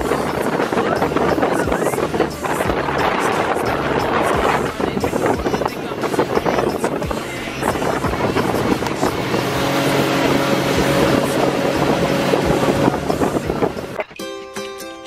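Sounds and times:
boat motor running: 0:00.0 - 0:14.2
water and wind rushing: 0:00.0 - 0:14.2
plucked-string music: 0:00.4 - 0:15.0.

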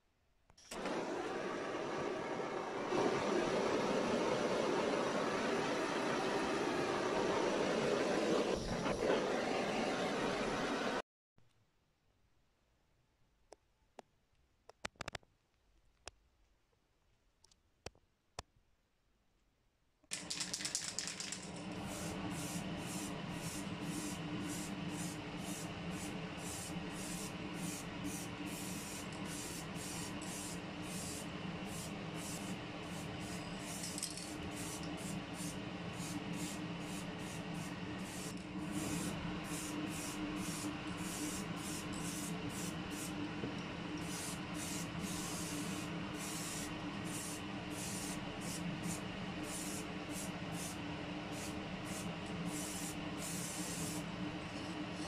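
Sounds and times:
spray-paint can hissing: 0:20.2 - 0:43.2, 0:44.0 - 0:55.0.

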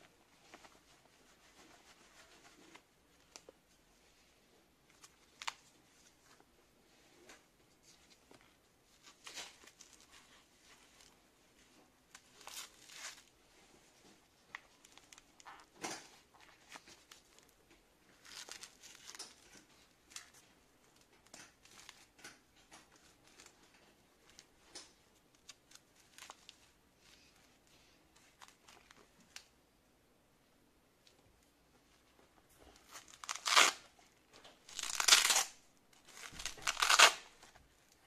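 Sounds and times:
hook-and-loop strap ripping: 0:32.9 - 0:33.9, 0:34.7 - 0:37.5.

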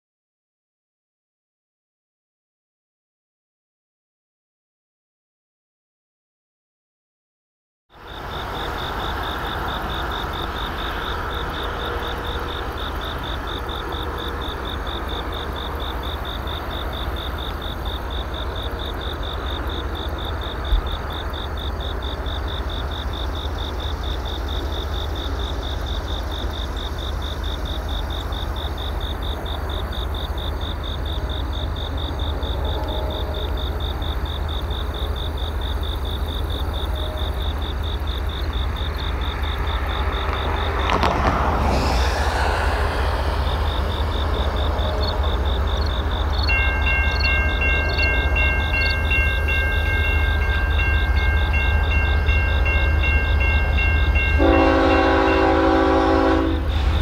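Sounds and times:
insects chirping in a high trill: 0:08.0 - 0:40.9, 0:42.0 - 0:55.9
low rumble: 0:40.3 - 0:46.4.

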